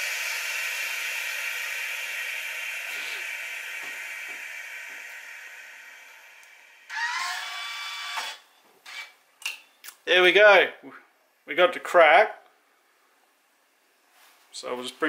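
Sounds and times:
hiss of escaping air: 0.0 - 5.3.

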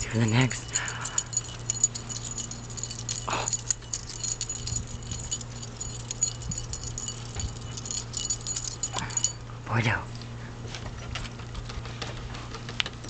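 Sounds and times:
dog collar tags jingling: 0.0 - 9.4.

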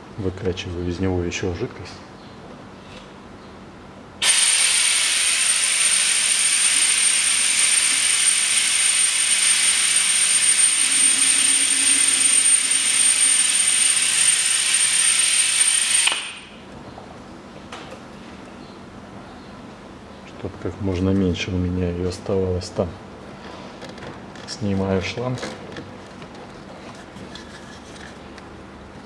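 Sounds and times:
suction pump hissing: 4.2 - 16.5.

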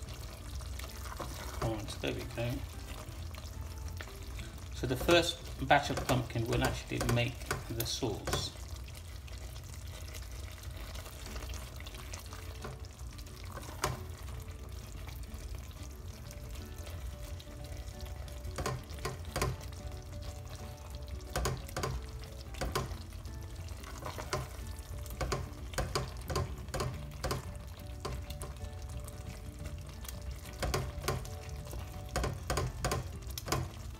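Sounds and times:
spatula scraping thick curry: 0.8 - 1.8
spatula knocking against pot: 5.0 - 8.6, 18.5 - 19.7, 21.3 - 23.0, 24.0 - 28.2, 30.5 - 31.3, 32.1 - 33.8.

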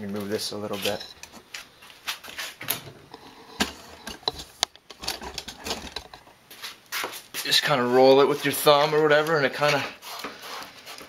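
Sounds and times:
handling clicks and rustles: 0.0 - 6.4.

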